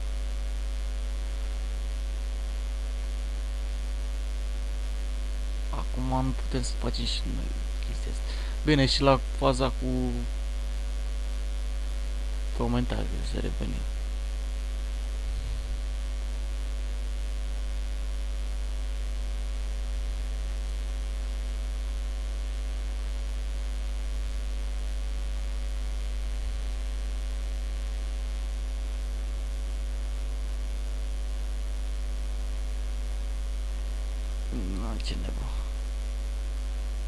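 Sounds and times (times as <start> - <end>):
electrical mains hum: 0.0 - 37.0.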